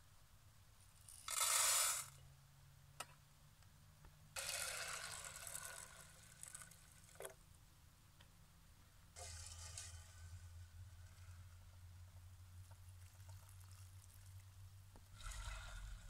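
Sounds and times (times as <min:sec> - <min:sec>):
dry beans rattling into pot: 0:01.0 - 0:02.2, 0:04.4 - 0:07.4.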